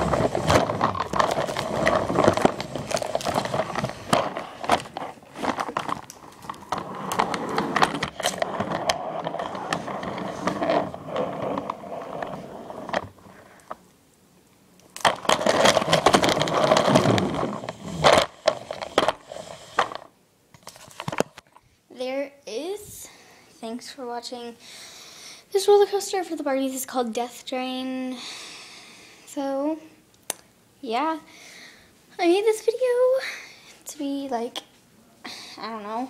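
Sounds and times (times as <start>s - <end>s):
toy ride rattling on cardboard track: 15.0s - 20.1s.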